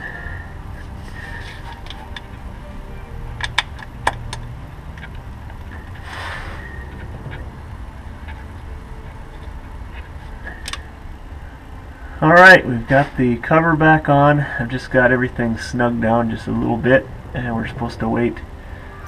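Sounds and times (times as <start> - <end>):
low steady hum: 0.0 - 19.0
brief metal scrape: 6.0 - 6.8.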